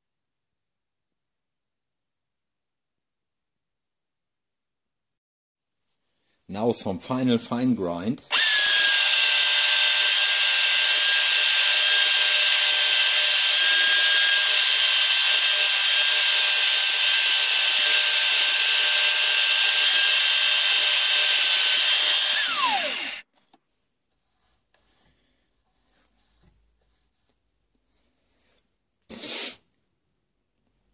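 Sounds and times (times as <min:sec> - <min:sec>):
electric drill whining: 0:08.3 - 0:23.2.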